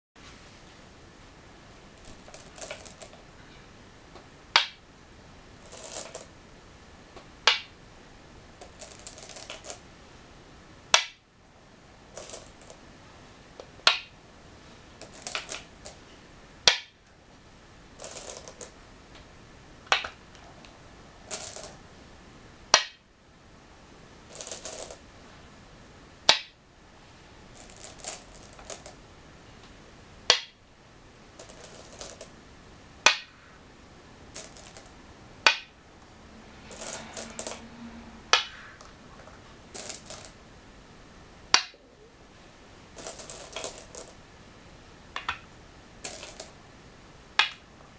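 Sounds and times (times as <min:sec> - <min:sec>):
stones clicking on wooden board: 0:02.0 - 0:03.2, 0:04.5 - 0:04.8, 0:05.6 - 0:06.3, 0:07.4 - 0:07.7, 0:08.6 - 0:09.8, 0:10.9 - 0:11.2, 0:12.2 - 0:12.8, 0:13.8 - 0:14.1, 0:15.0 - 0:16.0, 0:16.7 - 0:17.0, 0:18.0 - 0:18.8, 0:19.9 - 0:20.2, 0:21.3 - 0:21.8, 0:22.7 - 0:23.0, 0:24.3 - 0:25.0, 0:26.3 - 0:26.6, 0:27.6 - 0:29.0, 0:30.3 - 0:30.6, 0:31.4 - 0:32.3, 0:33.0 - 0:33.4, 0:34.3 - 0:35.7, 0:36.7 - 0:37.6, 0:38.3 - 0:40.4, 0:41.5 - 0:41.8, 0:43.0 - 0:44.2, 0:45.2 - 0:46.6, 0:47.4 - 0:47.6
stones rattling in bowls: 0:02.0 - 0:03.2, 0:05.6 - 0:06.3, 0:08.6 - 0:09.8, 0:12.1 - 0:12.8, 0:15.0 - 0:16.0, 0:18.0 - 0:18.8, 0:21.2 - 0:21.8, 0:24.3 - 0:25.0, 0:27.5 - 0:29.0, 0:31.3 - 0:32.3, 0:34.3 - 0:35.7, 0:36.6 - 0:37.7, 0:38.3 - 0:40.4, 0:42.9 - 0:44.2, 0:46.0 - 0:46.6.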